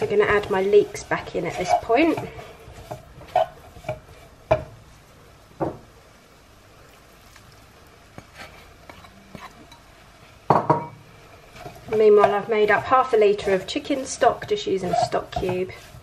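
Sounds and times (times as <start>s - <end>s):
plastic spatula scraping a frying pan: 0.0s - 4.4s, 11.5s - 16.0s
faint sizzle: 0.0s - 16.0s.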